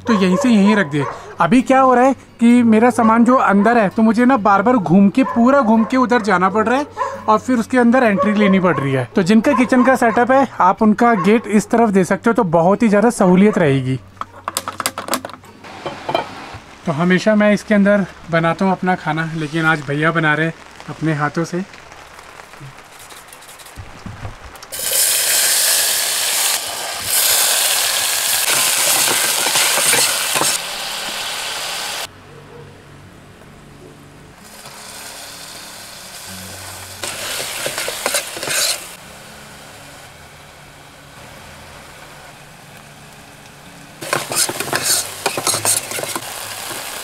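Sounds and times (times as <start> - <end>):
vegetables sizzling in hot oil: 15.7 - 32.1, 34.4 - 47.0.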